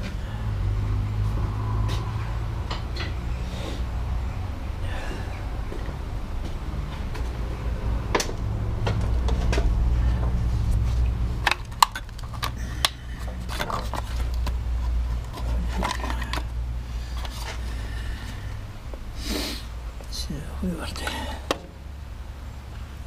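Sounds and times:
low mechanical hum: 0.0s - 23.0s
metal parts clanking and scraping: 11.4s - 17.6s.

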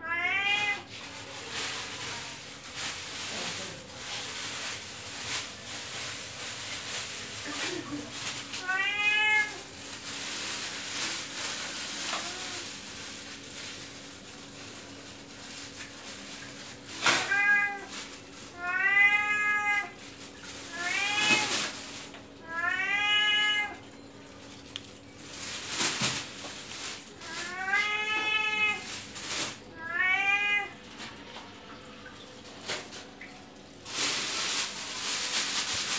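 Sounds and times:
cat meowing: 0.0s - 0.9s, 8.5s - 9.7s, 17.0s - 20.0s, 20.7s - 21.8s, 22.4s - 23.8s, 27.2s - 28.9s, 29.8s - 30.8s.

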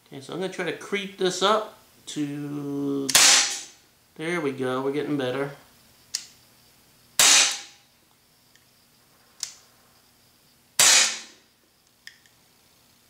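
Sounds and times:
pellet pistol shots: 3.1s - 3.7s, 7.2s - 7.7s, 10.8s - 11.4s.

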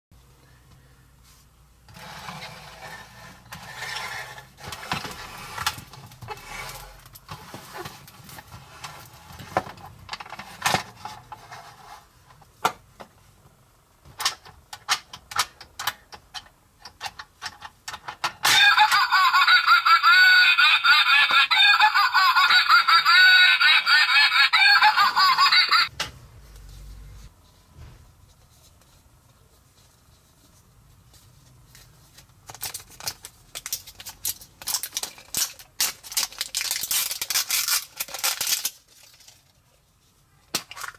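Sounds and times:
toy giggling laugh: 18.4s - 25.9s
plastic toys rustling: 29.7s - 40.9s.

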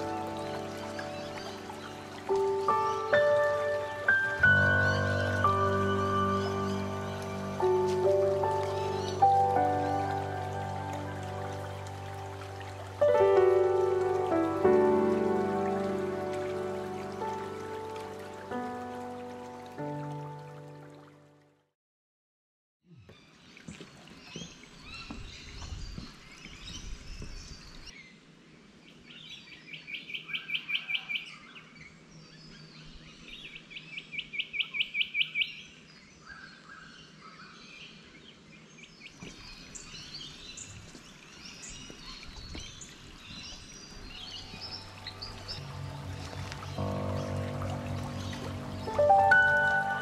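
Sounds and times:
birds chirping: 0.0s - 20.5s, 32.4s - 50.0s.

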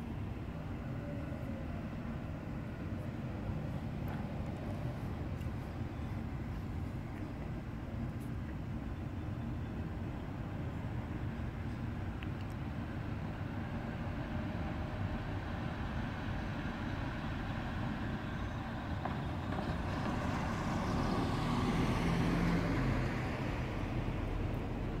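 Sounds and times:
car engine and tyre noise: 0.0s - 25.0s
low rumble of traffic: 0.0s - 25.0s.

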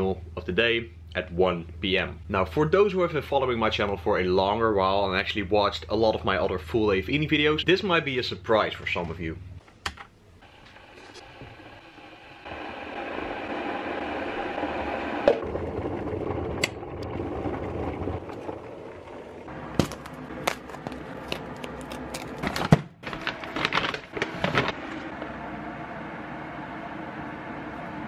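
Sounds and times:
electric kettle heating water: 10.4s - 21.8s, 24.2s - 28.0s
plastic bag crinkling: 19.6s - 25.0s.

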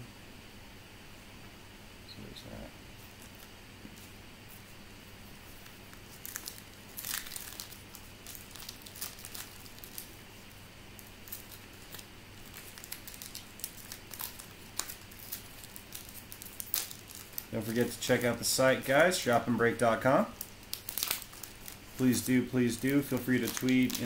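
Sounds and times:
wrapper crinkling: 5.5s - 24.0s
cards being handled: 20.4s - 24.0s.

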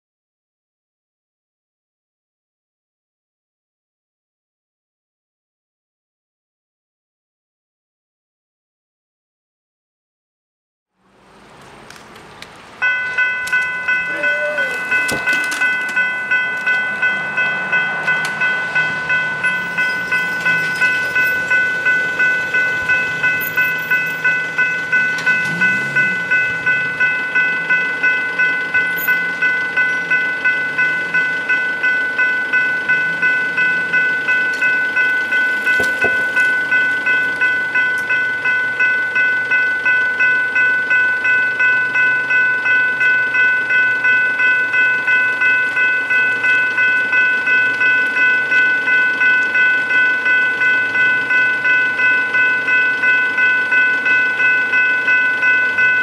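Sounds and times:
level-crossing bells ringing: 12.8s - 56.0s.

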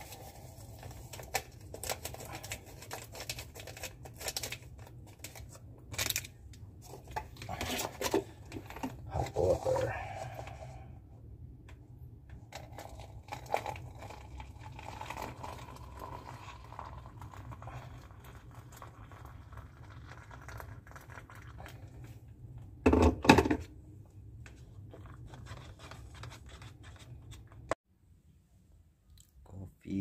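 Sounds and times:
hot water pouring into paper cup: 12.5s - 22.2s.

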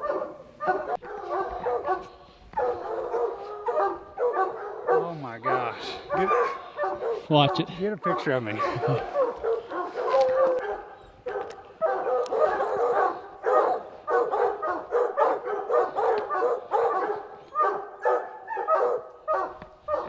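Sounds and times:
hounds baying: 0.0s - 20.0s.

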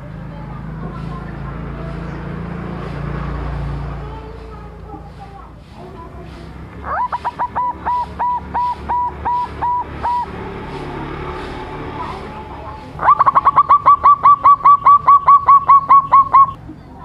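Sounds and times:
dove cooing: 6.0s - 16.6s.

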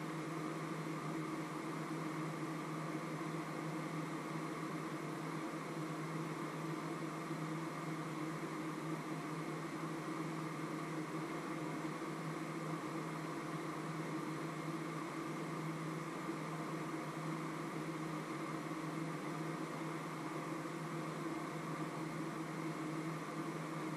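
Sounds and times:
steady machine hum with hiss: 0.0s - 23.9s.

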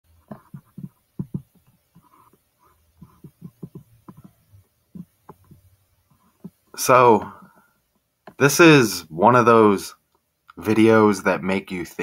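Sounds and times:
soft low thumps and taps: 0.1s - 8.4s.

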